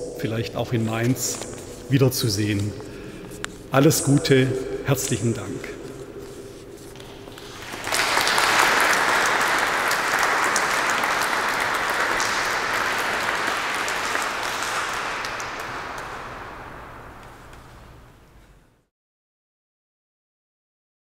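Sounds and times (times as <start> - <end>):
audience applauding: 7.3 - 17.8.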